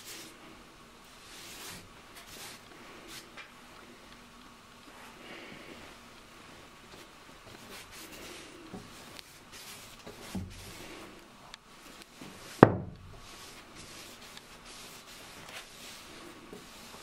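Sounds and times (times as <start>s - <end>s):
paintbrush strokes on wood: 0.0s - 4.0s, 6.4s - 11.2s, 11.8s - 17.0s
knocks on wood: 12.6s - 13.0s.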